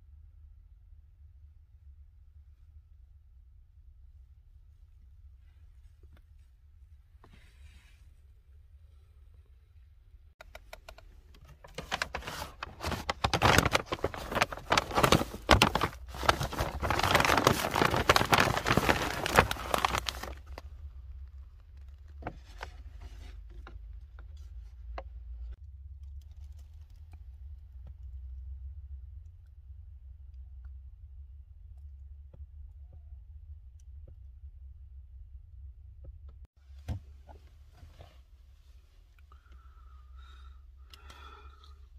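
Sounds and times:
low steady hum: 0.0s - 41.9s
small clicks: 10.4s - 11.6s
paper bag rustling: 11.6s - 20.6s.

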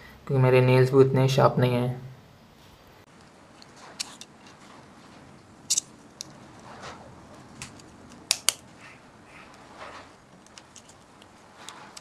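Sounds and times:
faint scraping: 2.6s - 8.0s, 8.7s - 12.0s
plastic clips snapping loose: 7.6s - 8.6s.

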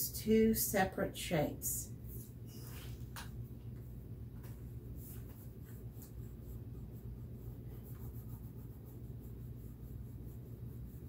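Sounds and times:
crayon scratching on paper: 5.0s - 11.0s.

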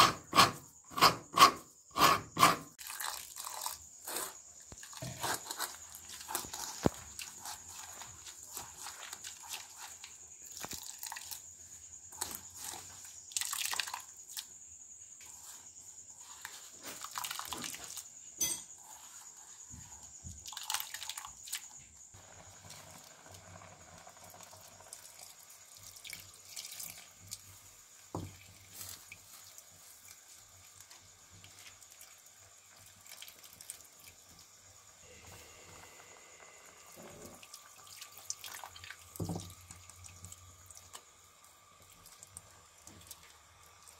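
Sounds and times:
wet squelching and dripping: 6.0s - 11.4s.

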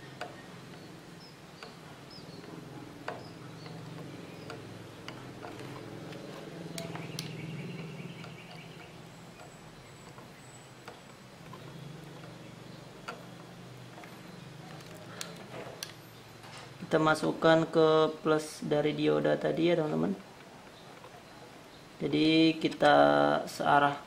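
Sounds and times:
soldering iron tapping on board: 0.0s - 14.2s
low steady hum: 0.0s - 24.0s.

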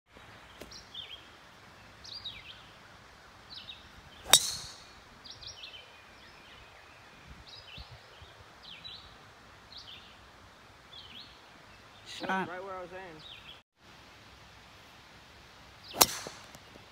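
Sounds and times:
birds chirping: 0.1s - 13.6s, 15.7s - 16.9s
golf club striking ball: 4.2s - 4.9s, 16.0s - 16.6s.

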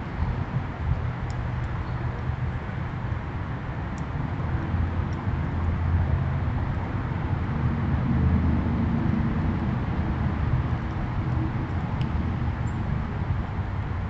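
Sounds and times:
distant traffic rumble: 0.0s - 14.0s
faint ticks: 1.2s - 1.8s.

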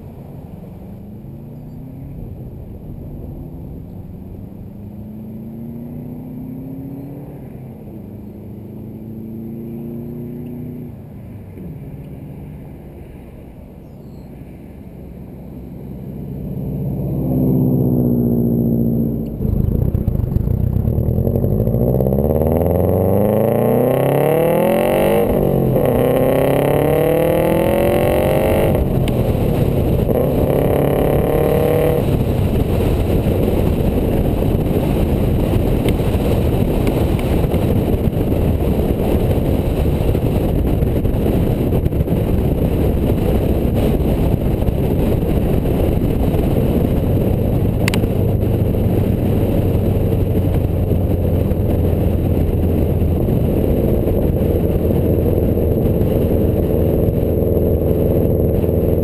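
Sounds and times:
car exhaust revving: 0.0s - 59.0s
wind noise on microphone: 0.0s - 59.0s
sharp tick: 47.8s - 48.1s.

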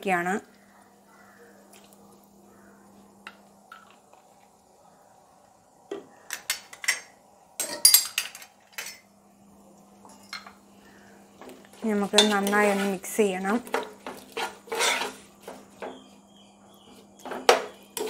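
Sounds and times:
metal spoon clinking on pot: 6.3s - 9.1s.

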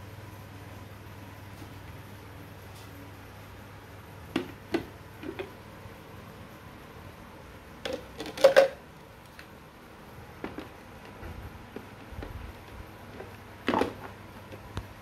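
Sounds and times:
plastic parts knocking and clicking: 7.8s - 8.8s, 10.4s - 14.8s.

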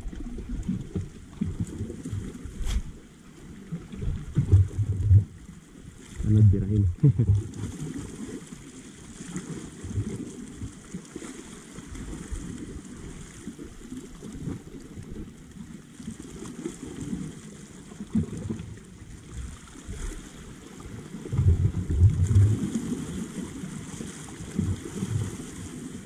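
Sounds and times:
water washing against rocks: 0.0s - 3.1s.

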